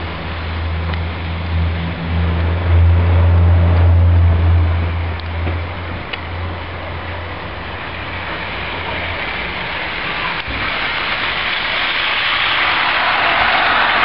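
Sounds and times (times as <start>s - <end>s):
low hum: 0.0s - 13.8s
model train wheels and motor rumbling: 0.0s - 14.0s.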